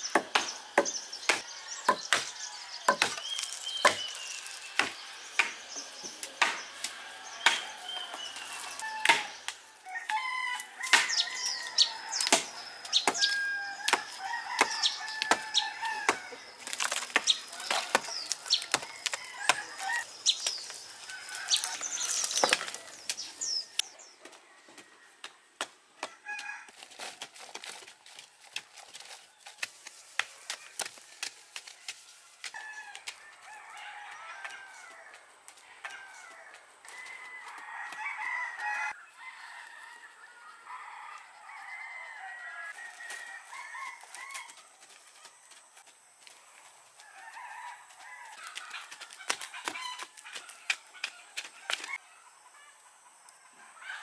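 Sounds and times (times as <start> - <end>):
hand tools striking earth: 0.0 - 10.2, 10.8 - 23.9
rooster: 32.5 - 45.4, 47.0 - 52.9, 53.6 - 54.0.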